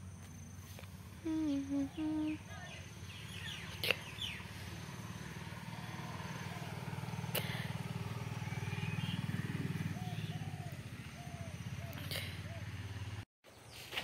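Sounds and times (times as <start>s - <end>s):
low engine drone: 0.0s - 13.2s
bird chirps: 1.3s - 5.2s, 8.7s - 12.8s.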